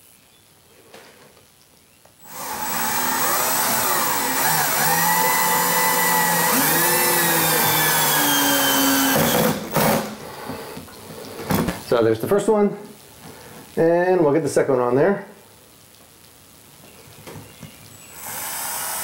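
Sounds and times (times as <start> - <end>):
cordless drill driving bolt into wood: 2.2 - 10.2.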